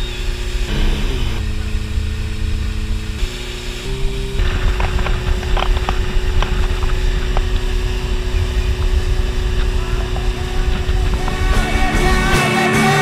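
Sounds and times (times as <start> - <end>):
wind and wake noise: 0.0 - 12.4
outboard motor running: 0.0 - 13.0.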